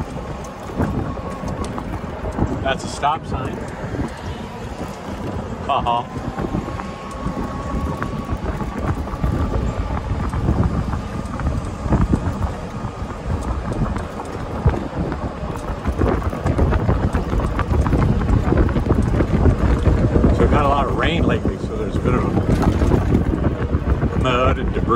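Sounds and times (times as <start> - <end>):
golf cart rumbling: 0.0 - 24.9
thin steady whine: 0.0 - 24.9
wind buffeting microphone: 0.0 - 24.9
knocks and rattles: 22.0 - 24.3.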